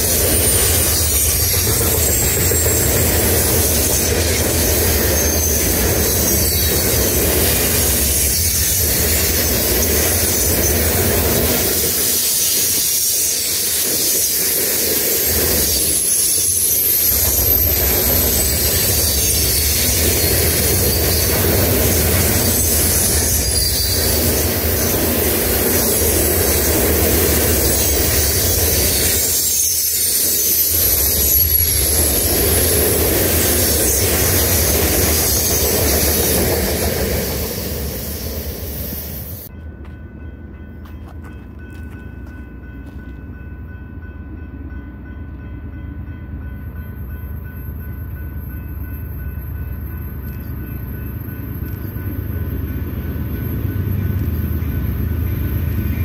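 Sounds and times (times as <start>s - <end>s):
high-pitched wheel squeals: 0.0s - 11.0s, 11.8s - 36.4s
steel wheels rumbling on rail: 0.0s - 56.0s.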